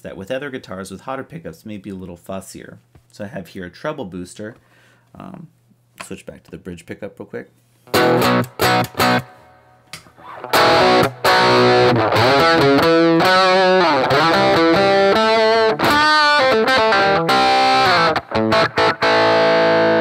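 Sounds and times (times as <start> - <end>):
distorted electric guitar lead: 7.9 - 9.4, 10.2 - 20.0.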